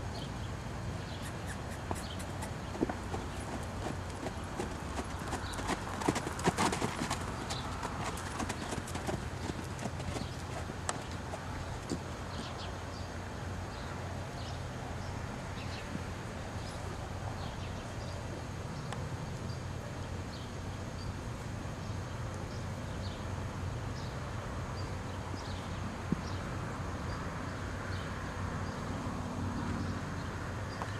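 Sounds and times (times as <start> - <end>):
small birds chirping: 0.0 - 16.0, 21.8 - 30.9
hoofbeats on sand: 1.7 - 12.6.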